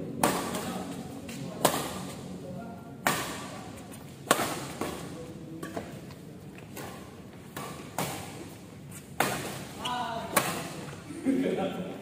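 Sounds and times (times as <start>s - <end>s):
rackets striking shuttlecock: 0.1s - 0.9s, 1.6s - 2.2s, 3.0s - 5.9s, 6.7s - 11.0s.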